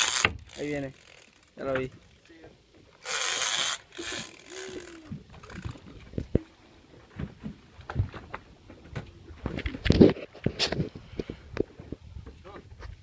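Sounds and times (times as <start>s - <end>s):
fishing reel clicks and knocks: 0.0s - 2.4s, 3.0s - 5.9s.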